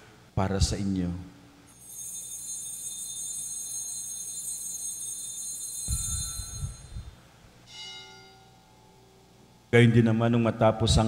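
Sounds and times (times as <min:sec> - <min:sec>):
altar bells jingling: 0:01.7 - 0:07.2
lower-pitched bell struck: 0:01.9 - 0:09.2.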